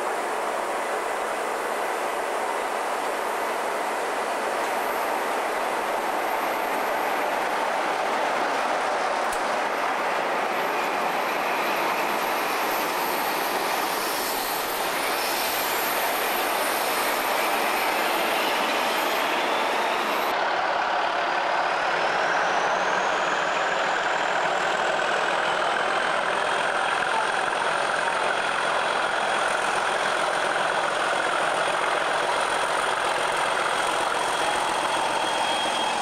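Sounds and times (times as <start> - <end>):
freight train rumbling past: 0.0 - 36.0.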